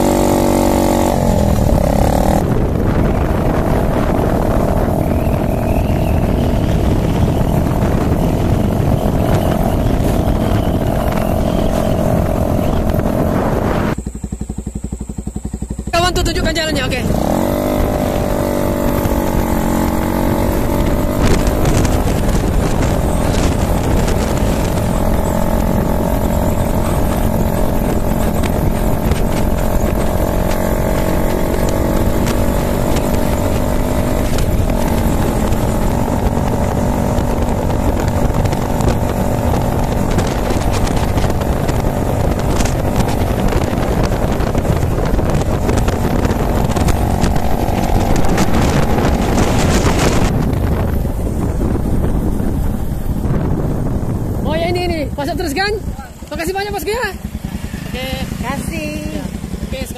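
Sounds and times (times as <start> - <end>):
motorcycle engine running: 0.0 - 59.9
wind and road noise: 0.0 - 59.9.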